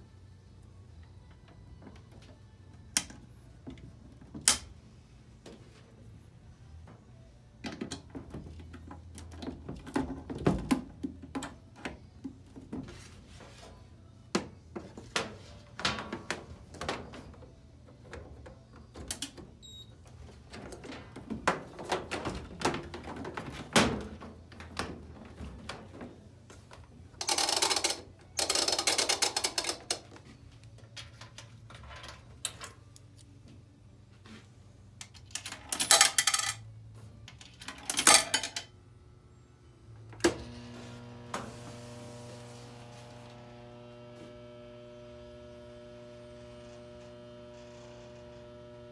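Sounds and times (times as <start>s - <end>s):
coin rattling through box: 27.2s - 29.8s, 35.4s - 36.6s.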